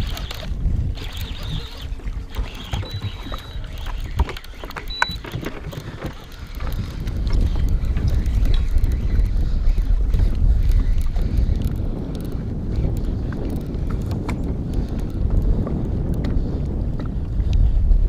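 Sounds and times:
gear knocking on boat: 0:00.0 - 0:11.8
wind rumbling on microphone: 0:00.0 - 0:18.0
short high beeps: 0:02.6 - 0:04.0, 0:04.7 - 0:05.4.

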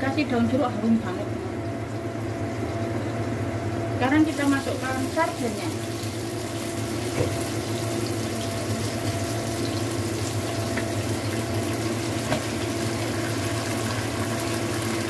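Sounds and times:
vegetables sizzling in hot oil: 0:04.1 - 0:15.0.

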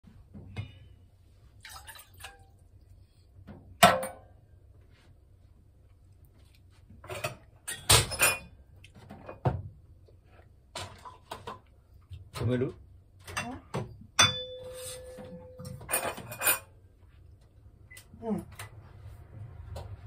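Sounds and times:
water pouring into saucepan: 0:01.6 - 0:02.6
pots clattering: 0:13.3 - 0:16.7.

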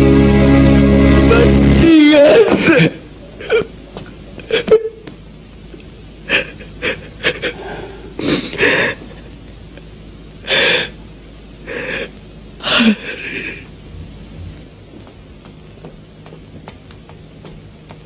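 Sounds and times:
person sobbing: 0:01.3 - 0:03.7, 0:06.3 - 0:09.0, 0:12.6 - 0:13.7
wheezing gasping breaths: 0:06.3 - 0:09.2, 0:10.4 - 0:11.0, 0:11.6 - 0:14.7.

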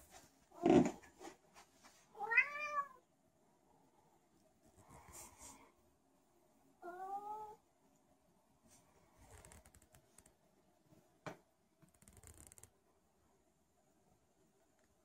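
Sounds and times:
cat meowing: 0:02.2 - 0:03.0.

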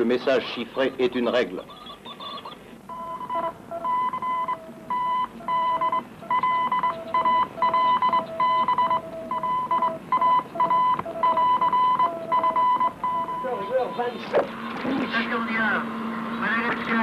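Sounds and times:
morse code beeping: 0:01.1 - 0:14.4.

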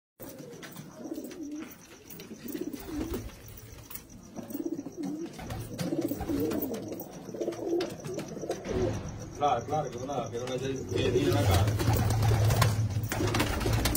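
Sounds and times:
pigeons cooing: 0:00.2 - 0:09.3, 0:10.2 - 0:13.9.

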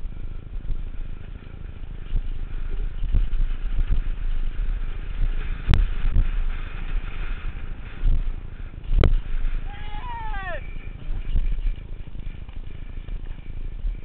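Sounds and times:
bike rattling: 0:00.0 - 0:14.0
wind rumbling on camera: 0:00.0 - 0:14.0.

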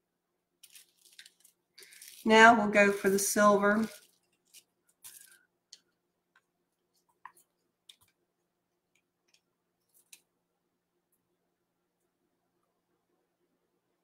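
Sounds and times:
plastic cups clicking and tapping: 0:05.0 - 0:08.2.

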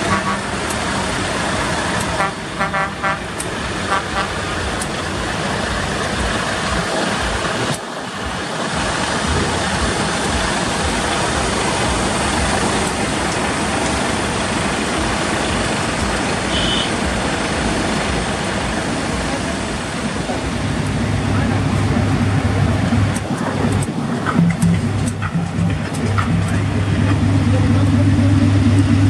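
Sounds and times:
diesel truck engines: 0:00.0 - 0:29.0
traffic: 0:00.0 - 0:29.0
short high beep: 0:16.5 - 0:16.9.

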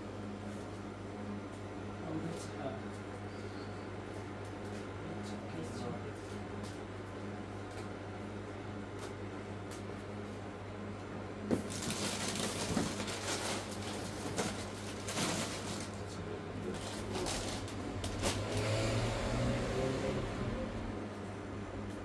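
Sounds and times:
steady low hum: 0:00.0 - 0:22.0
snack packets and boxes rustling: 0:11.5 - 0:18.8.

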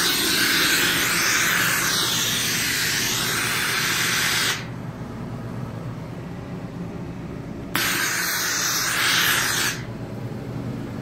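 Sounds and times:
steam nozzle hissing: 0:00.0 - 0:04.7, 0:07.8 - 0:09.9
low steady hum: 0:00.0 - 0:11.0.

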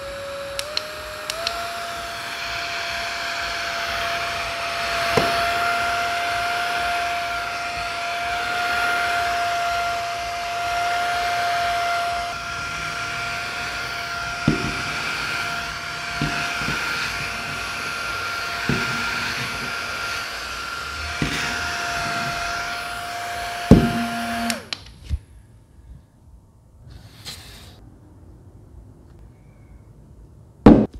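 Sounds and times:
handheld fan motor whine: 0:00.0 - 0:25.2
handling knocks: 0:14.4 - 0:15.5.

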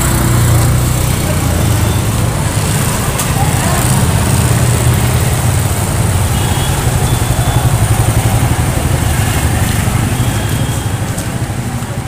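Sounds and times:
street noise: 0:00.0 - 0:12.0
vehicle engine running: 0:00.0 - 0:12.0.

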